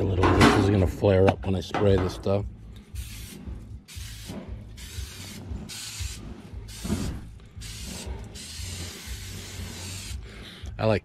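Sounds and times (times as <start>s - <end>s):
cooking spray hissing: 3.0s - 10.2s.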